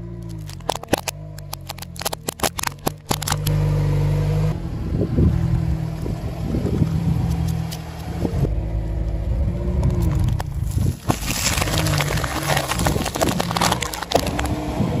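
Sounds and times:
car engine humming: 0:00.0 - 0:15.0
reversed crackling and clicks: 0:00.2 - 0:03.6, 0:09.8 - 0:14.7.

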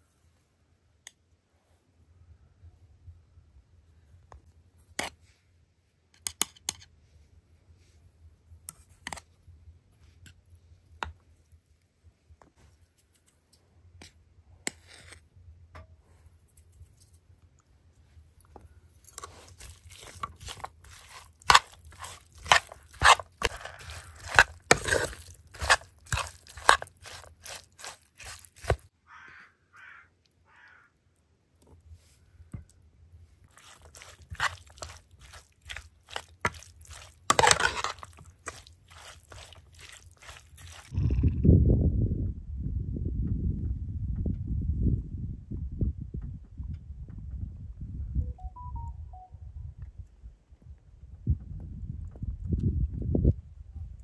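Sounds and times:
spoon clanking and scraping in pan: 0:19.2 - 0:28.8, 0:33.6 - 0:40.9.

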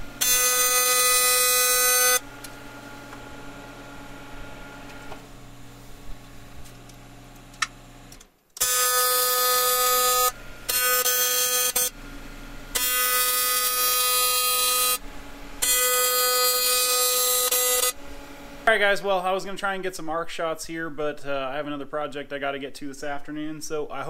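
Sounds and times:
welding arc buzzing: 0:00.0 - 0:18.8
faint shop hum: 0:00.0 - 0:24.0.

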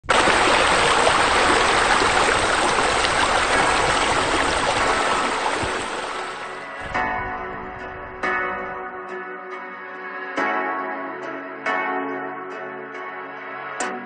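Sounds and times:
running water rushing: 0:00.0 - 0:08.9.

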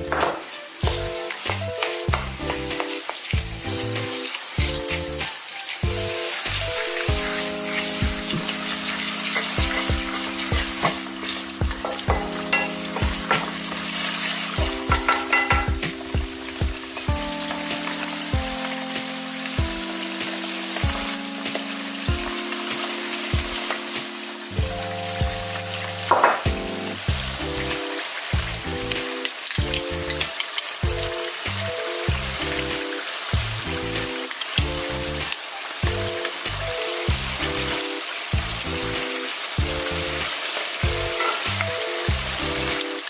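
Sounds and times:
background music with held chords: 0:00.0 - 0:43.0
meat sizzling in oil: 0:00.0 - 0:43.0
wooden spatula stirring pan: 0:00.1 - 0:18.4.

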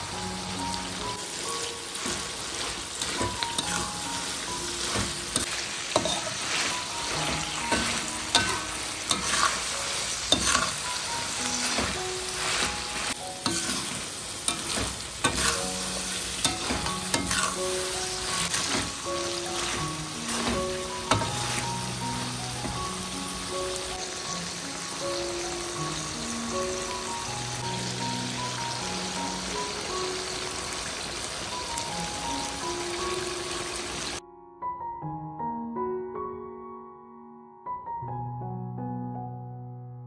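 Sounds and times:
food sizzling in a pan: 0:00.0 - 0:34.2
spatula scraping the pan: 0:04.8 - 0:10.9, 0:11.5 - 0:21.8.

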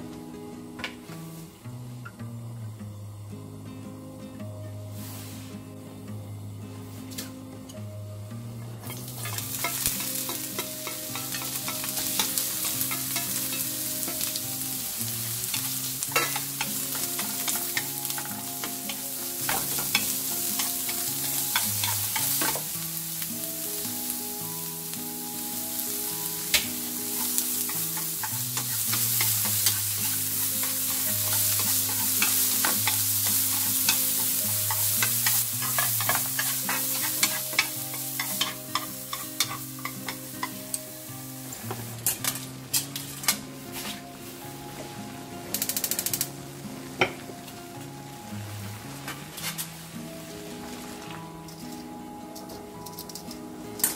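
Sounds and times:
carrots sizzling in hot oil: 0:04.9 - 0:05.6, 0:08.8 - 0:44.5
chopsticks clicking against pan: 0:08.9 - 0:14.4, 0:26.5 - 0:40.6, 0:45.5 - 0:46.3.

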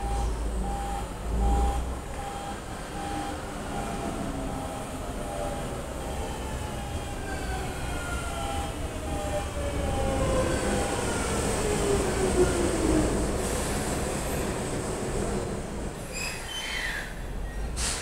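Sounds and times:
train motor whine: 0:00.0 - 0:14.3
wheels rumbling on rail: 0:00.0 - 0:18.0.

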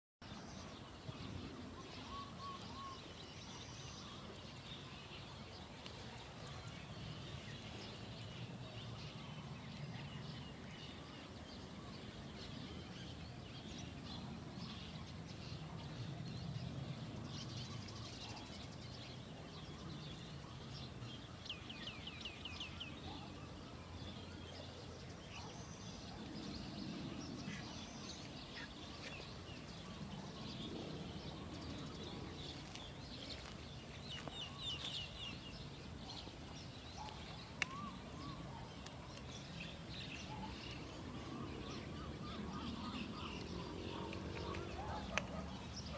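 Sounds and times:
birds chirping and calling: 0:17.4 - 0:45.9.

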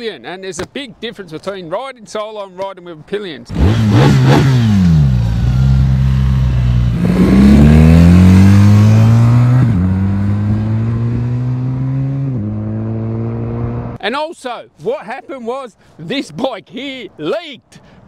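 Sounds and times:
motorcycle engine revving and upshifting: 0:03.5 - 0:14.0.

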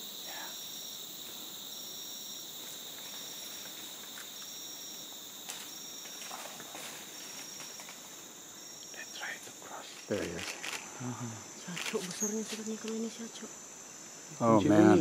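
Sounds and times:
insect chorus drone: 0:00.0 - 0:15.0
pulsed insect call: 0:00.0 - 0:15.0.

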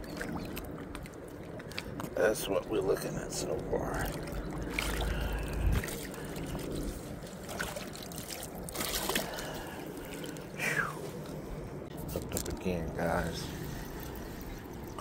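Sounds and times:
water splashing and trickling: 0:00.0 - 0:15.0
low rumble: 0:03.0 - 0:07.4.

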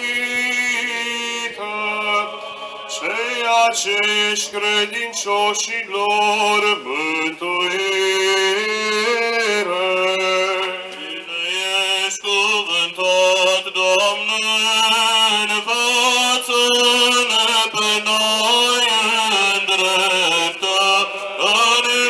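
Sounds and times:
men chanting a hymn: 0:00.0 - 0:22.0.

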